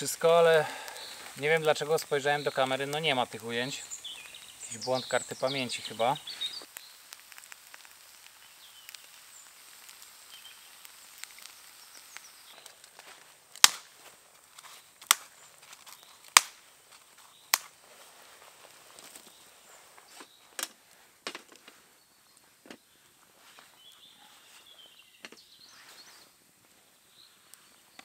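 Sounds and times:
sharp cracks or knocks: 0:12.6 - 0:16.7, 0:17.5 - 0:17.8.

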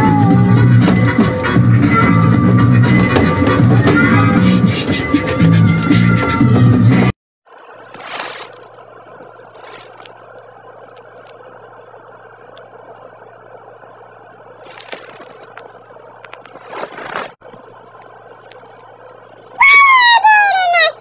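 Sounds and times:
steady background hum: 0:07.5 - 0:21.0
short rustling noises: 0:09.5 - 0:10.2, 0:14.6 - 0:15.8, 0:16.4 - 0:17.4.

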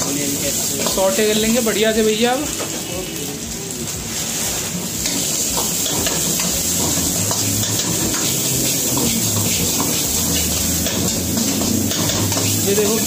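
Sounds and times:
vegetables sizzling in a wok: 0:00.0 - 0:13.0
ladle scraping and clinking pan: 0:05.0 - 0:12.7.

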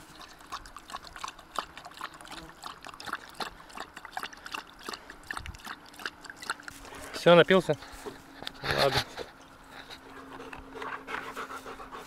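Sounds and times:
dog lapping water: 0:00.0 - 0:08.0.

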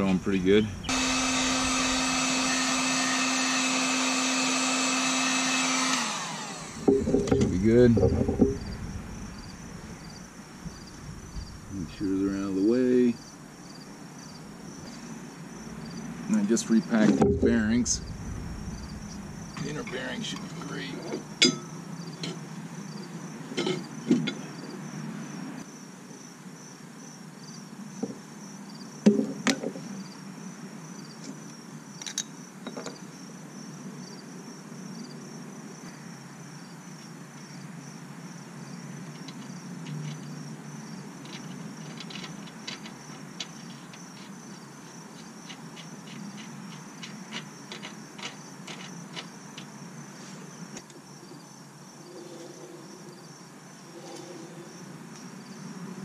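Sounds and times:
insects chirping: 0:00.0 - 0:56.0
metal clunks: 0:06.8 - 0:10.1, 0:17.0 - 0:19.8.

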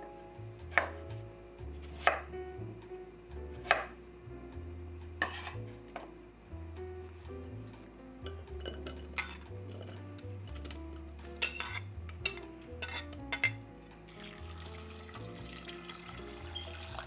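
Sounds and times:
knife striking cutting board: 0:00.7 - 0:01.0, 0:01.9 - 0:02.3, 0:03.6 - 0:04.0, 0:05.2 - 0:06.1.

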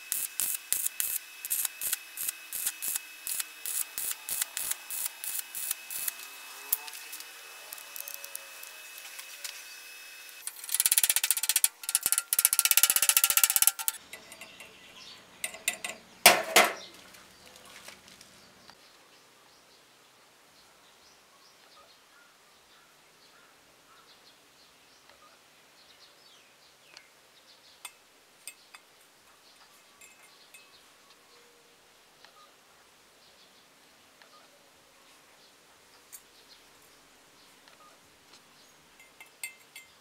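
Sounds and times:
welding arc crackling: 0:00.0 - 0:14.0.

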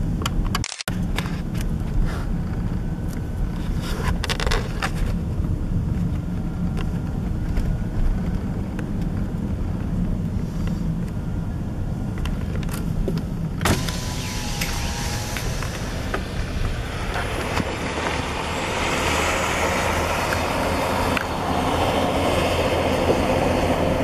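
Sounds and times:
car engine and tyres rumbling: 0:00.0 - 0:24.0
road and truck noise: 0:00.0 - 0:24.0
power window motor whine: 0:13.6 - 0:19.5.

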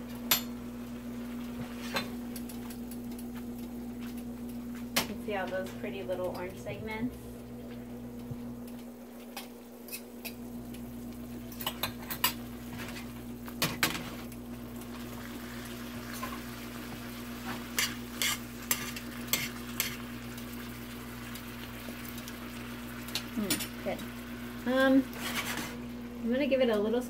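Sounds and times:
steady hum: 0:00.0 - 0:27.0
sauce sizzling: 0:07.2 - 0:27.0.

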